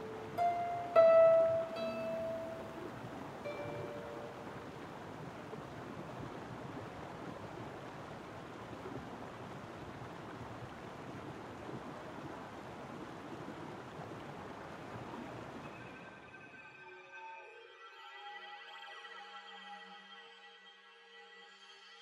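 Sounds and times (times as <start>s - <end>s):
river water rushing: 0.0s - 15.6s.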